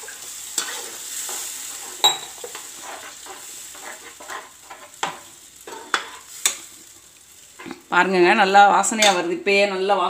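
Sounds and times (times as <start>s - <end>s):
spatula scraping a pan: 0.0s - 7.8s
masala sizzling in oil: 0.0s - 10.0s.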